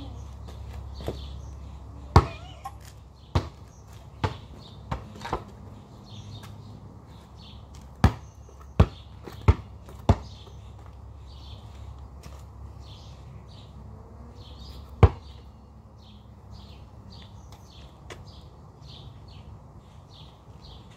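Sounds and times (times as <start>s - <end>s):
basketball bouncing on asphalt: 0.4s - 1.4s, 2.1s - 11.1s, 14.6s - 15.5s.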